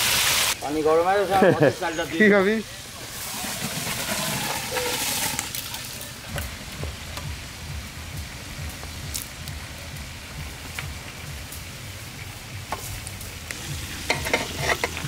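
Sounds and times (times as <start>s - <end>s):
fish frying in oil: 0.0s - 0.6s, 2.8s - 15.0s
rice poured into a pot: 3.0s - 6.1s.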